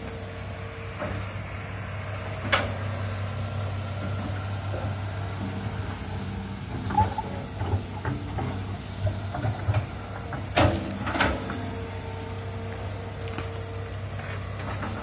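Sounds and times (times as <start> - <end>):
excavator diesel engine running: 0.0 - 15.0
excavator bucket clanking and scraping: 4.0 - 12.2, 13.3 - 15.0.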